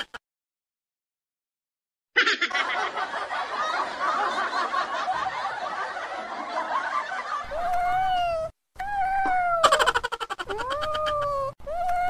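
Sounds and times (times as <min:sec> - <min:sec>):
crowd laughing: 0:02.2 - 0:07.9.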